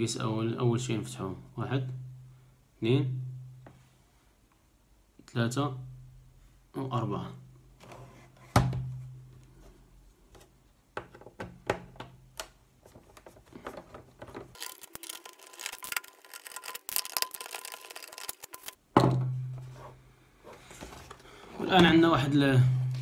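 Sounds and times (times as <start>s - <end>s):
screwdriver clicking and scraping plastic: 14.5s - 18.8s.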